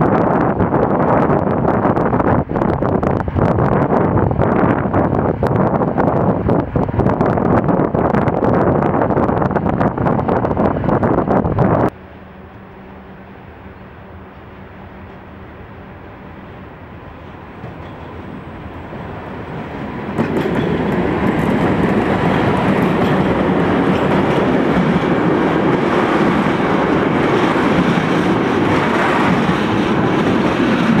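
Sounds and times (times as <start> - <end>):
electric locomotive passing: 0.0 - 31.0
wheels clicking on rails: 19.4 - 31.0.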